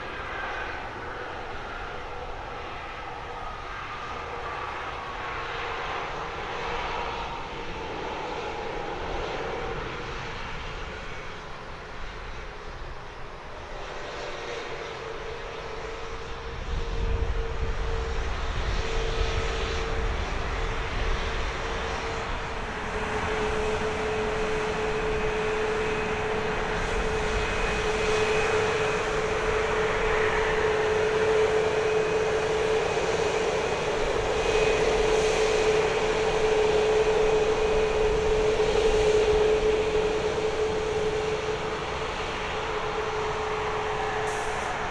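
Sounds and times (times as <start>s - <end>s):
jet engines idling whine: 0.0s - 44.9s.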